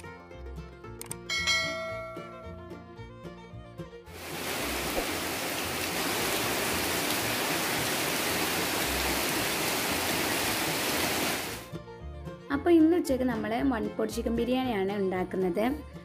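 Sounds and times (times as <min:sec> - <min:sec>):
heavy rain on foliage and roof: 0:04.2 - 0:11.7.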